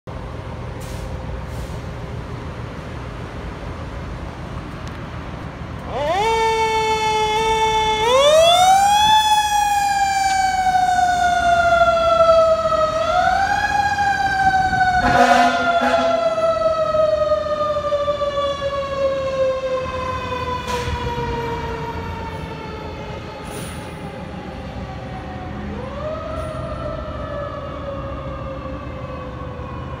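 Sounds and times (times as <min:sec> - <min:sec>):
fire engine siren wailing: 0:05.7 - 0:30.0
short horn blast: 0:15.0 - 0:16.2.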